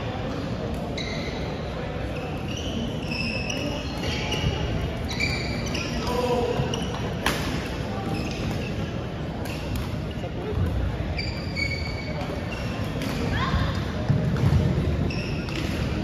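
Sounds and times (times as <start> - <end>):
shoe squeaks on wooden floor: 1.0 - 7.2, 8.0 - 9.7, 11.0 - 13.4, 14.9 - 15.8.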